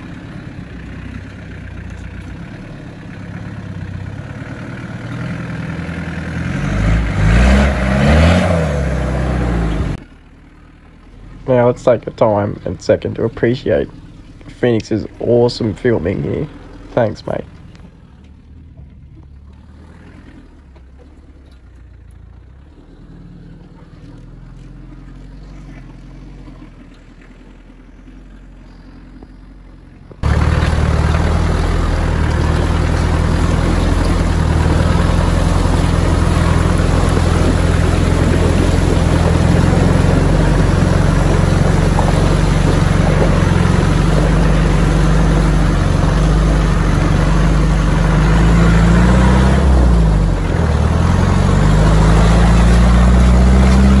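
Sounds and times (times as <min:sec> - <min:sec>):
diesel engine running: 0:00.0 - 0:54.0
water churning and splashing: 0:11.6 - 0:28.2, 0:30.2 - 0:54.0.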